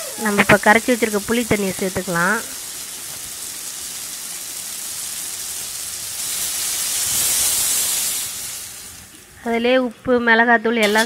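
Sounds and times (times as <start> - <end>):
vegetables sizzling in a pan: 0.0 - 11.0
liquid poured into hot pan: 2.4 - 9.4.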